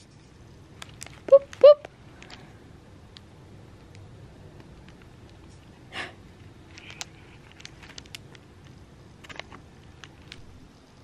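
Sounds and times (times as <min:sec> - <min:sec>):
cat playing with crinkly tinsel toy: 0:00.7 - 0:01.3, 0:06.6 - 0:10.4.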